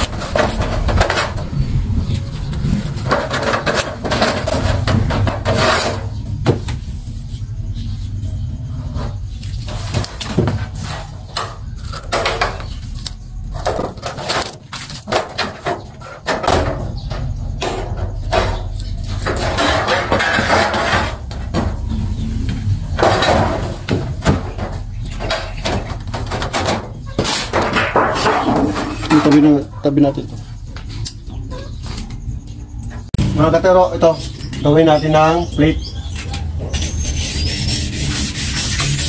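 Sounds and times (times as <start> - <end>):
steady low hum: 0.0 - 14.2.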